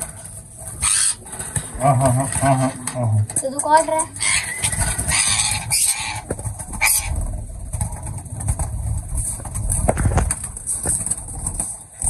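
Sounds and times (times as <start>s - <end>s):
pigeons cooing: 0.0s - 7.5s
bird wings flapping: 0.0s - 12.0s.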